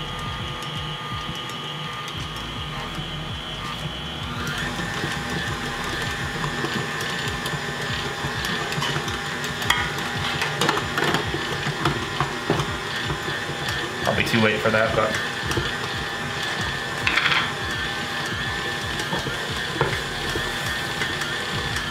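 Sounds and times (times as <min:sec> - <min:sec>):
stand mixer motor running: 0:00.0 - 0:21.9.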